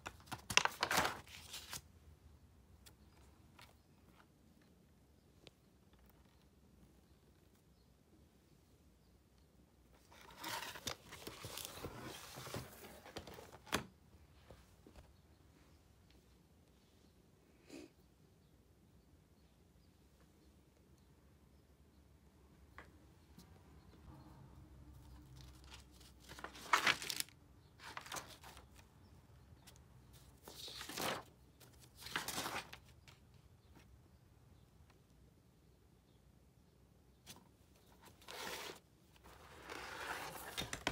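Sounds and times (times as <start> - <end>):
paper pages rustling and crinkling: 0.0 - 1.9, 10.0 - 13.9, 25.3 - 28.8, 30.2 - 33.2, 37.3 - 40.9.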